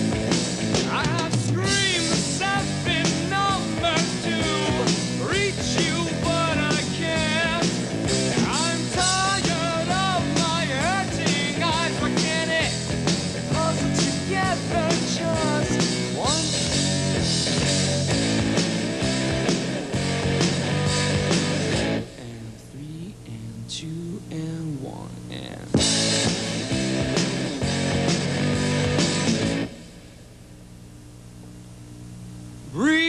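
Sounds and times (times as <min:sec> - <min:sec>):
rock band playing: 0:00.0 - 0:22.2, 0:25.8 - 0:30.0.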